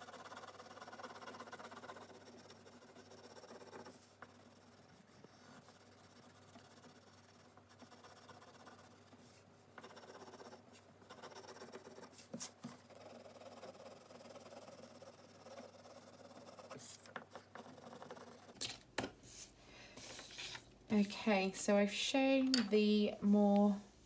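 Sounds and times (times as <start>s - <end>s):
pencil scratching on paper: 0.0s - 21.1s.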